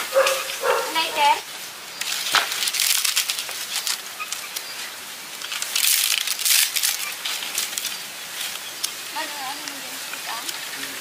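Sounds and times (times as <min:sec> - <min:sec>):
dry fronds rustling and crackling: 0:00.0 - 0:11.0
sticks snapping: 0:02.0 - 0:04.7, 0:05.4 - 0:09.0.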